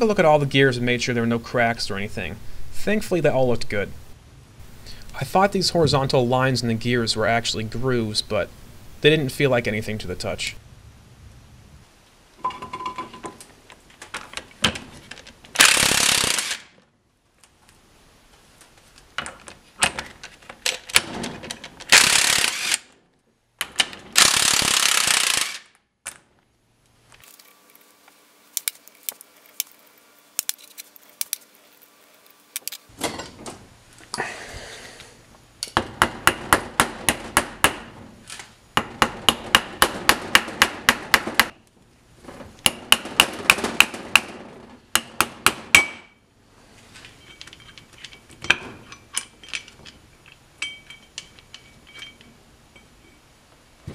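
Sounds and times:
impact wrench hammering: 0:35.7 - 0:38.0, 0:38.8 - 0:41.6, 0:42.6 - 0:46.2.

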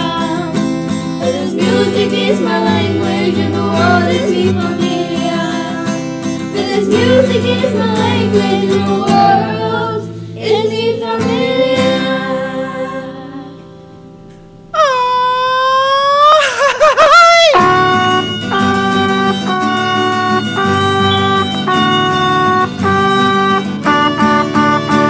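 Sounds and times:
children singing: 0:00.0 - 0:13.7
guitar accompaniment: 0:00.0 - 0:25.0.

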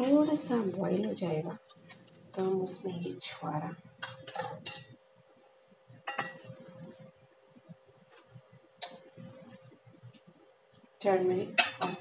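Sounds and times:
steel plate clinking against saucepan: 0:11.6 - 0:12.0.

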